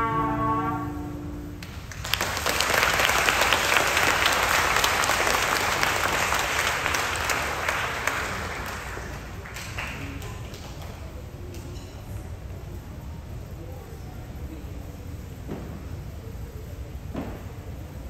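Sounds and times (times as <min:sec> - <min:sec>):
children applauding: 0:01.6 - 0:11.0.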